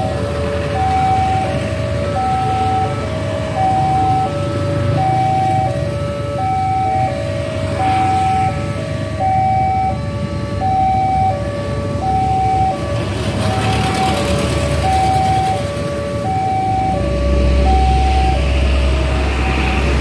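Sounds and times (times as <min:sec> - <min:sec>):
engines idling: 0:00.0 - 0:20.0
heavy vehicle rumble: 0:00.0 - 0:20.0
level crossing alarm chime: 0:12.0 - 0:12.8, 0:13.7 - 0:18.5.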